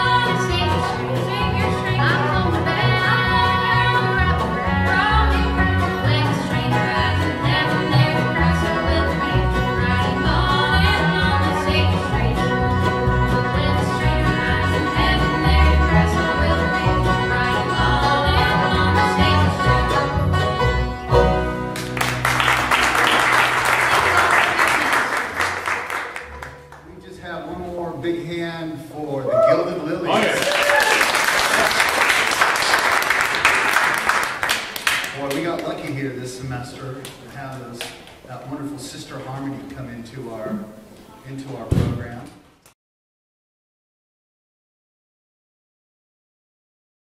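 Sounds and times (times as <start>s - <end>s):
women singing harmony: 0.0s - 12.6s, 13.2s - 19.9s
bluegrass string band playing: 0.0s - 28.4s
audience applause: 21.7s - 26.9s, 30.1s - 36.0s.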